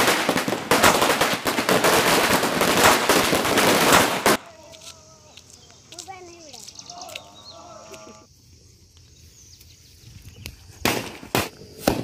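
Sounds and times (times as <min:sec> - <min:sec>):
firecrackers crackling: 0:00.0 - 0:06.7, 0:10.5 - 0:12.0.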